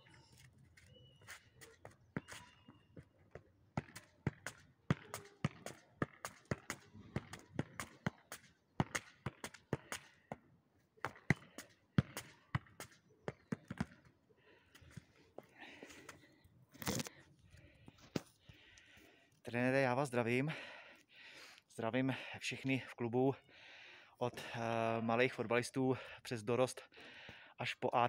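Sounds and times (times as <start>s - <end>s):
football thumps: 3.8s - 10.4s, 11.0s - 14.1s.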